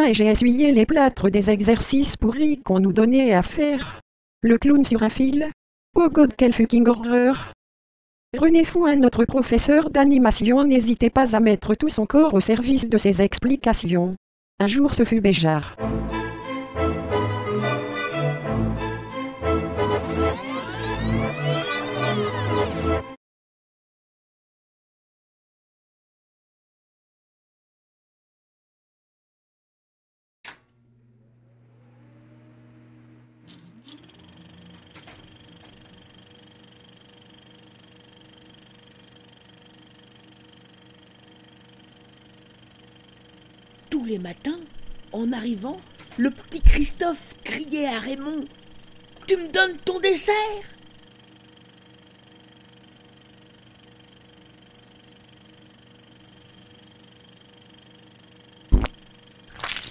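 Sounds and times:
faint steady hum: 0:30.6 - 0:33.5
faint steady hum tones: 0:30.6 - 0:59.5.

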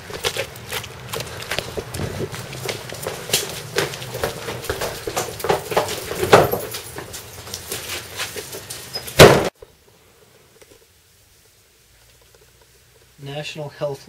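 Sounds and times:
people running footsteps: 0:00.0 - 0:09.5
door slamming: 0:09.0 - 0:09.6.

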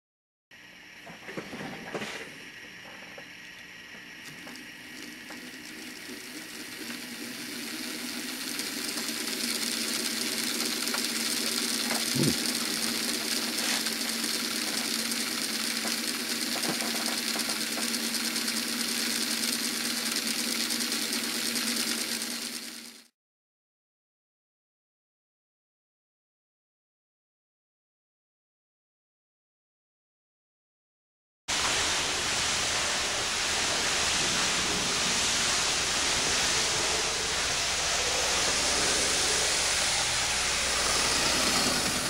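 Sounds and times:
model locomotive motor whirring: 0:00.6 - 0:23.1, 0:31.5 - 0:42.0.

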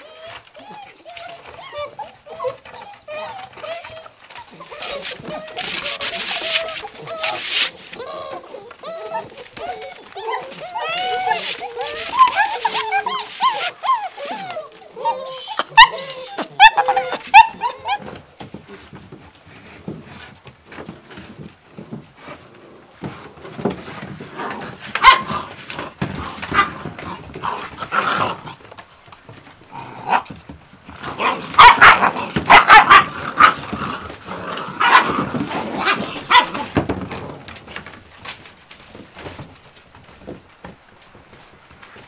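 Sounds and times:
puppies barking and yipping: 0:00.0 - 0:18.3, 0:24.9 - 0:28.8, 0:29.7 - 0:37.1.

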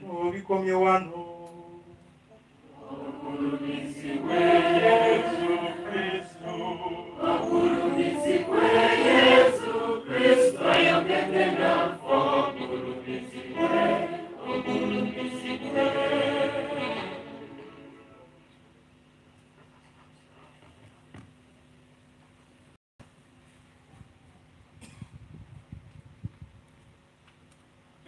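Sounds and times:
choir singing in harmony: 0:02.6 - 0:18.4.

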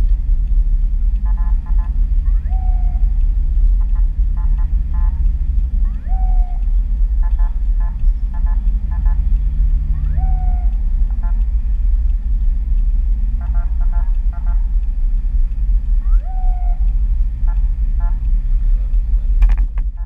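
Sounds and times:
car cabin road rumble: 0:00.0 - 0:20.0
siren rapid beeping: 0:02.3 - 0:03.1, 0:05.8 - 0:07.5, 0:09.9 - 0:11.4, 0:16.0 - 0:16.9
siren whoop chirps: 0:02.3 - 0:03.2, 0:05.8 - 0:06.7, 0:10.0 - 0:10.8, 0:16.0 - 0:17.0.

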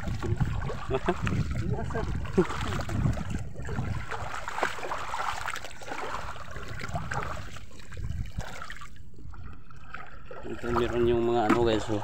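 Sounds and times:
seawater sloshing and splashing: 0:00.0 - 0:12.0.

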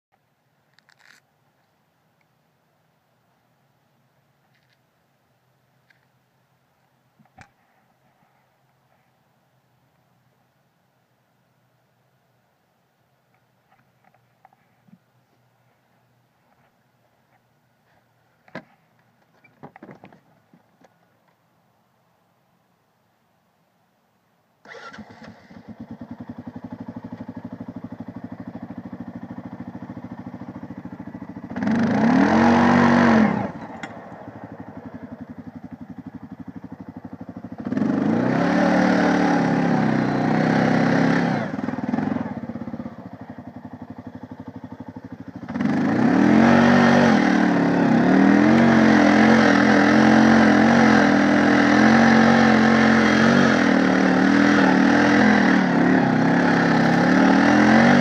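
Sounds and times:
atv engine idling and revving: 0:24.6 - 0:58.0.

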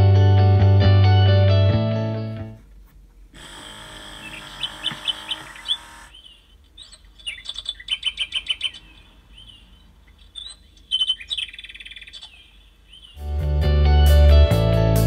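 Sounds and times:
electronic bird chirping: 0:03.5 - 0:13.3.

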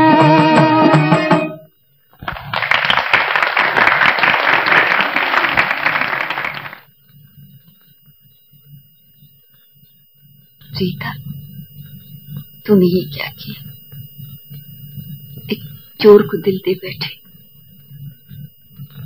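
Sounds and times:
instrumental music held note: 0:00.0 - 0:01.7
crowd clapping and applauding: 0:02.2 - 0:06.9
faint low soundtrack hum: 0:10.6 - 0:13.8.

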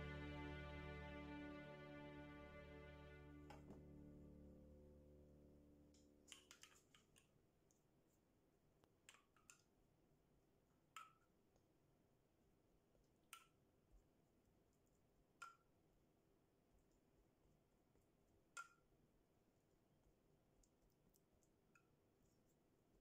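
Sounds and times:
background music: 0:00.0 - 0:05.8.

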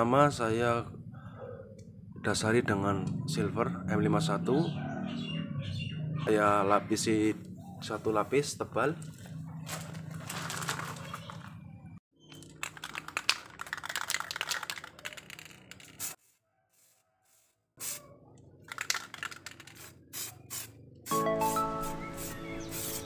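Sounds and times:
hands clicking and rustling paper: 0:09.7 - 0:11.6, 0:12.3 - 0:16.2, 0:18.6 - 0:19.9
background music: 0:21.1 - 0:23.0.

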